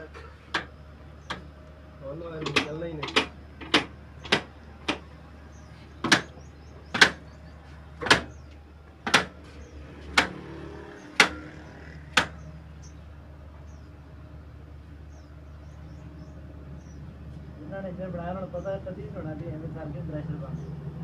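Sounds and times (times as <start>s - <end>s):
diesel engine firing cracks: 2.2s - 5.1s, 10.0s - 12.5s.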